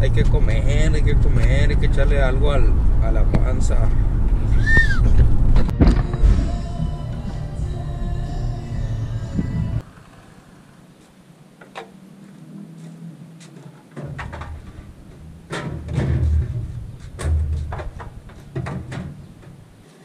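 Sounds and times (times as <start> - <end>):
plastic jugs thudding: 13.9 - 19.7
vending machine doors clunking: 14.0 - 19.8.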